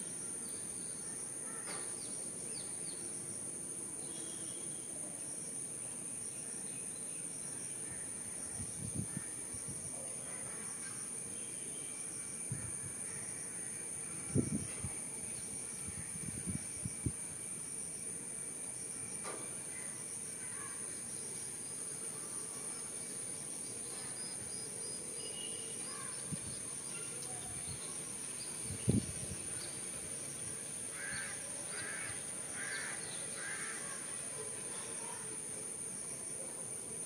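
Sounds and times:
harsh caw-like bird calls: 1.4 - 1.9, 30.9 - 34.2
faint bird chirps: 24.9 - 29.8.

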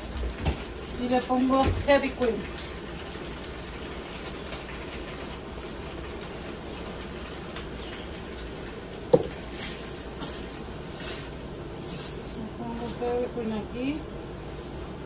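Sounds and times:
carton knocking on counter: 9.1 - 9.4
pan hissing: 9.1 - 13.4.

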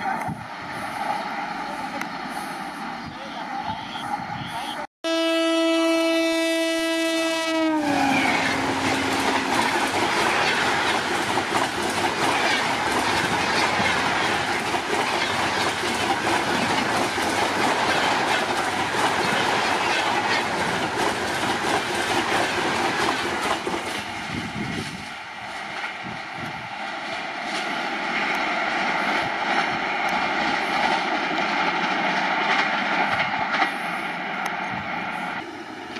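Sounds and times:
express train rushing past: 0.0 - 35.9
locomotive horn: 3.7 - 9.6
wheels clicking over rail joints: 8.3 - 24.1.

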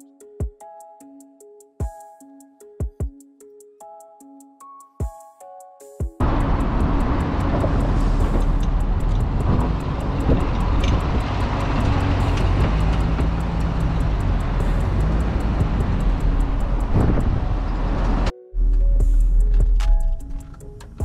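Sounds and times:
music: 0.0 - 21.0
car engine and exhaust passing: 6.2 - 18.3.

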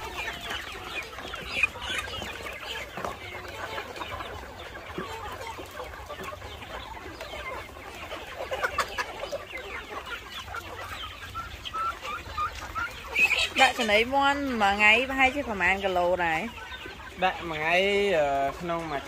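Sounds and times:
chickens clucking and chirping: 0.0 - 19.0.

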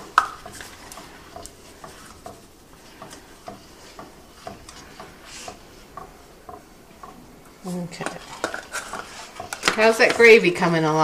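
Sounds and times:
salt shaker ticks and taps: 0.0 - 7.2.

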